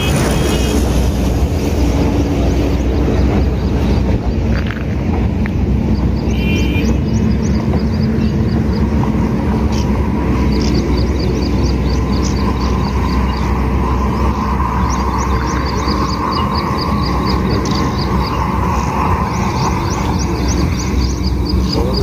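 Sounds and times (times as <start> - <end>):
small bird chirping: 9.6 - 22.0.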